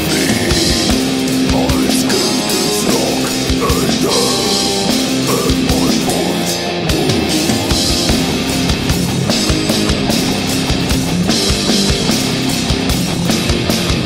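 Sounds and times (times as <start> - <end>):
distorted electric guitars: 0.0 - 14.0
drum kit: 0.0 - 14.0.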